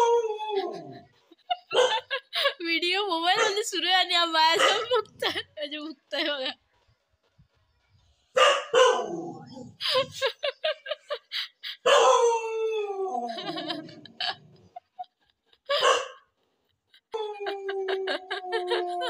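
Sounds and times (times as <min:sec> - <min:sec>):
dog barking and howling: 0:00.0 - 0:01.0, 0:01.7 - 0:02.2, 0:03.3 - 0:03.6, 0:04.5 - 0:05.0, 0:08.4 - 0:09.7, 0:11.8 - 0:14.0, 0:15.7 - 0:16.2, 0:17.2 - 0:19.0.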